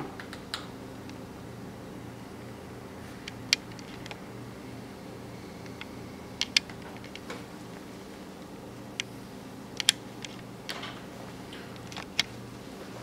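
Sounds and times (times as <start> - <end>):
low steady hum: 0.0 - 13.0
screwdriver metal clicks: 9.8 - 10.9.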